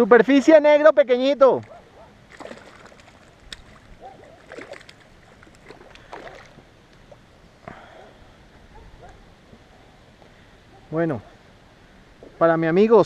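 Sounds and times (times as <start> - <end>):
fish splashing in water: 1.6 - 6.6.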